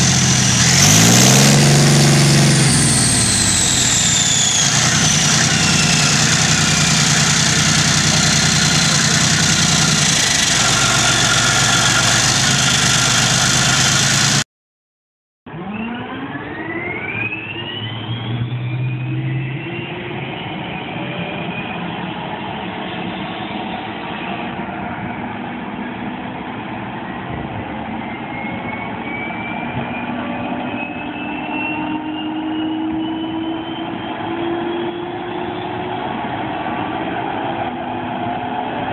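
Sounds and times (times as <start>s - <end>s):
gas turbine whine rising: 0.0s - 14.4s, 15.5s - 38.9s
tank diesel engine running: 0.0s - 14.5s.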